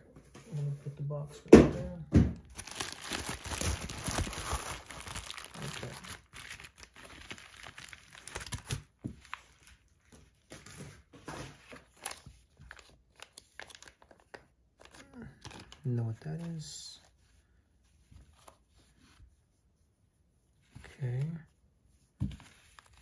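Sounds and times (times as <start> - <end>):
bubble wrap and plastic crinkling: 2.4 - 17.2, 22.2 - 23.0.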